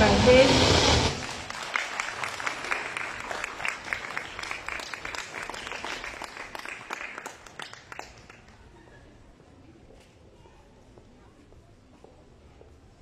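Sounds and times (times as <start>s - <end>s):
audience applauding: 0.9s - 8.6s.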